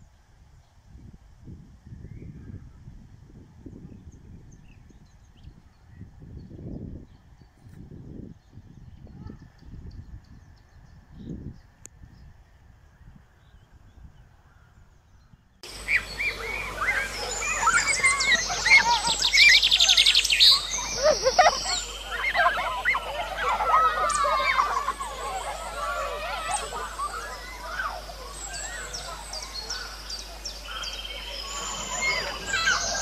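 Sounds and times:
birds chirping: 15.2 - 33.0
children shouting and playing: 15.6 - 33.0
fast rattling trill: 15.7 - 33.0.

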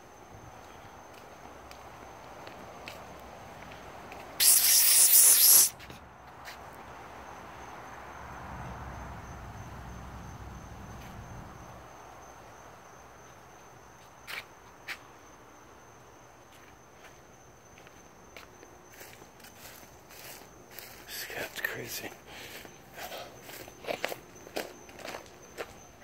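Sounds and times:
loud hiss: 4.4 - 5.8
night insects trilling: 4.4 - 5.8, 6.6 - 26.0.

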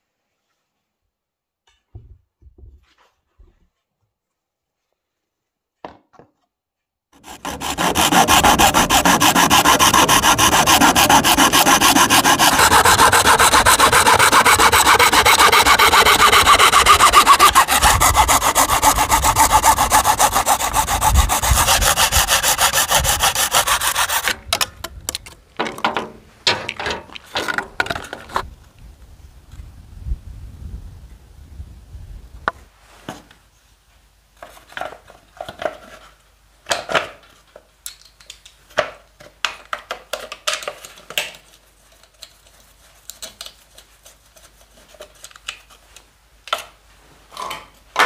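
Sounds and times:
knocks and rustles: 1.7 - 3.8
hacksaw cutting plastic: 7.2 - 25.4.

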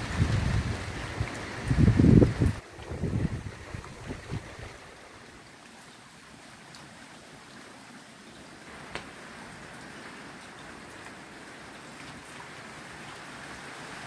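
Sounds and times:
steady rain falling: 0.0 - 14.0.

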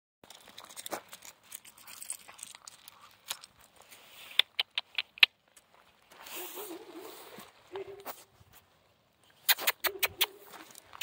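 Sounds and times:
puppy paws on gravel: 0.2 - 11.0.

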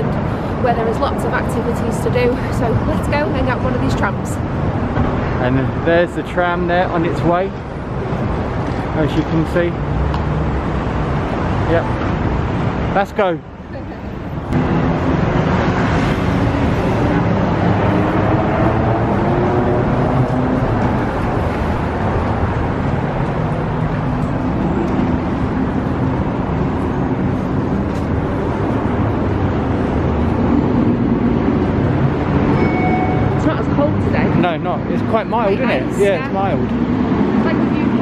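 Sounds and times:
road vehicles running nearby: 0.0 - 38.0
low engine drone: 13.8 - 38.0.

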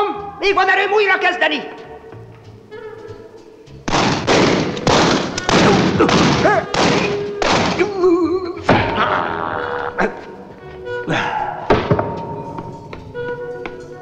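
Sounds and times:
loud crashing cartoon hits: 3.9 - 7.9.

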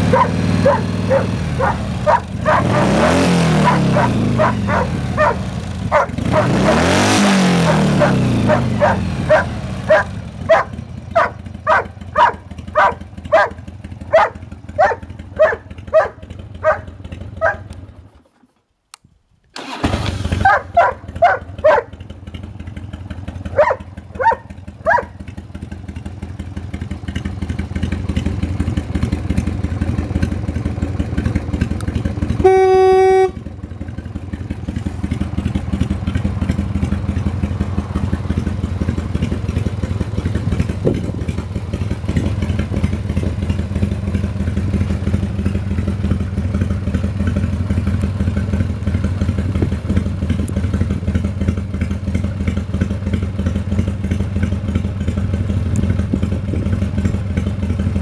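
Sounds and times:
motorcycle engine running: 0.0 - 18.6, 19.6 - 58.0
horn beep: 32.4 - 33.5.

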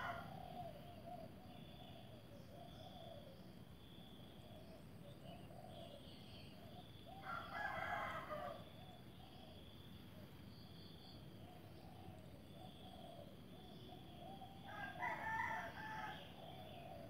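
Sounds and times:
faint background noise: 0.0 - 17.0
rooster crowing: 7.2 - 8.6, 14.7 - 16.4.

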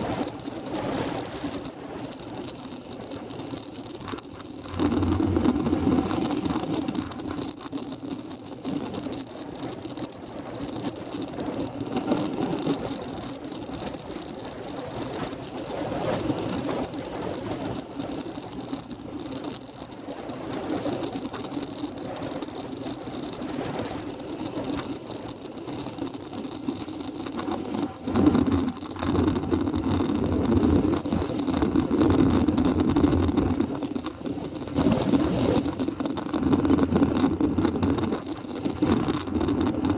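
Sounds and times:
rushing wind: 25.5 - 39.9.

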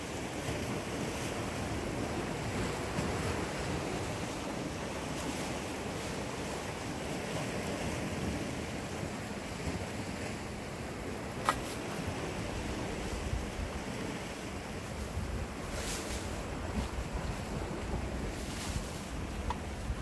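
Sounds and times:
sea surf on rocks: 0.0 - 20.0
wind buffeting microphone: 10.8 - 20.0.

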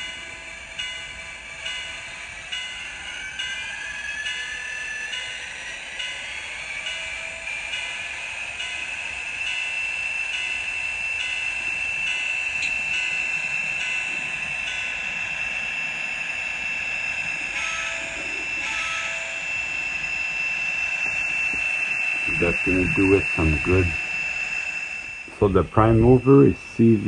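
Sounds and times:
model train diesel engine sound: 0.0 - 27.0
steady high-pitched tone: 0.0 - 27.0
short tones: 10.3 - 27.0.

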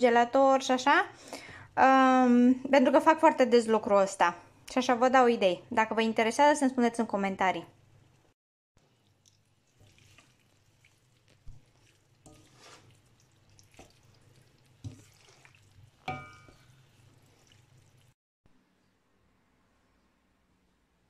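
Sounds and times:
wet stirring: 8.0 - 18.2
wooden spatula scraping steel pan: 11.4 - 17.4.

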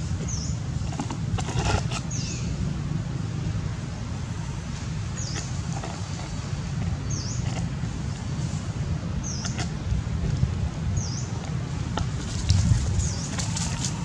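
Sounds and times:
steady low rumble: 0.0 - 14.0
dry leaves rustling and crackling: 12.1 - 14.0.

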